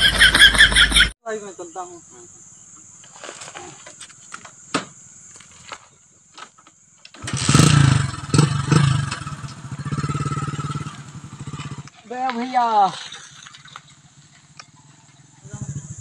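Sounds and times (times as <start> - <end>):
motorcycle engine revving and idling: 7.2 - 16.0.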